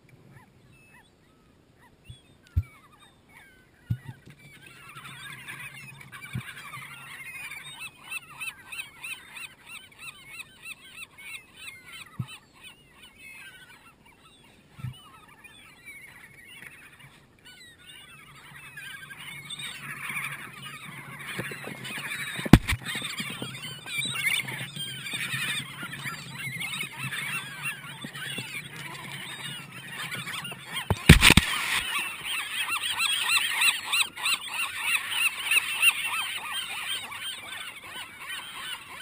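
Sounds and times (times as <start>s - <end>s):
gulls calling: 0.3s - 39.0s
dull thumps: 22.5s - 22.8s, 30.9s - 31.8s.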